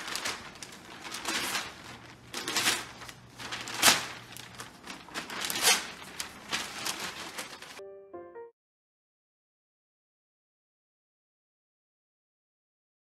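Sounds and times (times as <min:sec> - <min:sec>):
dog tearing newspaper: 0:00.0 - 0:07.8.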